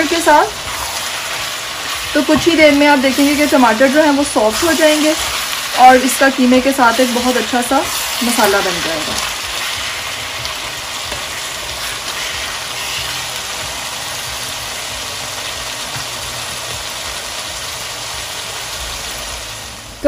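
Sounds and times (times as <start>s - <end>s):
meat sizzling in a frying pan: 0.0s - 20.0s
wooden spatula stirring: 0.2s - 14.4s.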